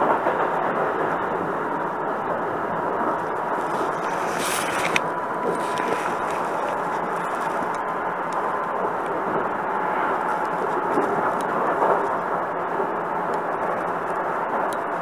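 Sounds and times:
train rumble and hiss: 0.0 - 15.0.

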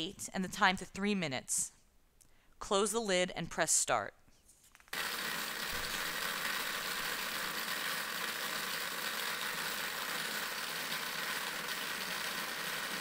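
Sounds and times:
bead homogenizer running: 5.0 - 13.0.

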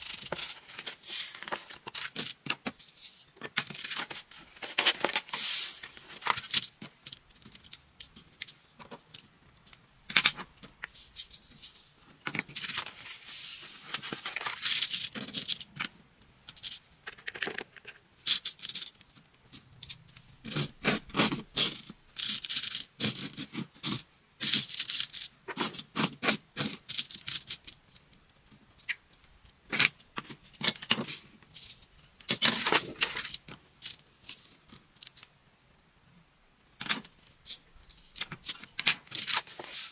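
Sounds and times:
paper sheet rustling: 0.0 - 6.6, 11.0 - 15.5, 38.0 - 39.9.

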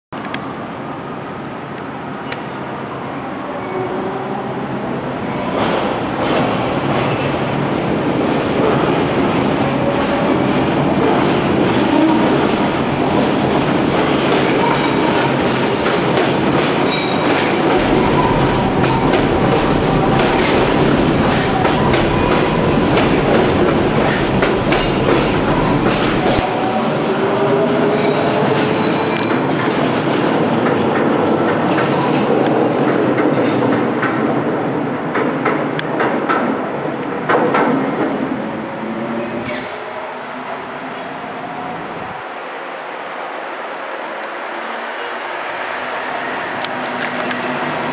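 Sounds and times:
train wheels rumbling on rails: 4.7 - 42.3.

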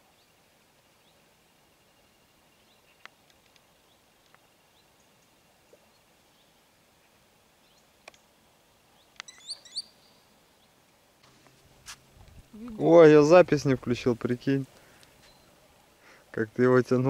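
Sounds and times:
faint clicks: 8.0 - 8.3
high rising bird calls: 9.2 - 10.2.

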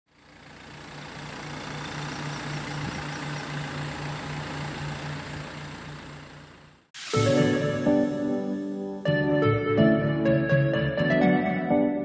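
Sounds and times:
music with pulsing bass: 7.2 - 12.0.

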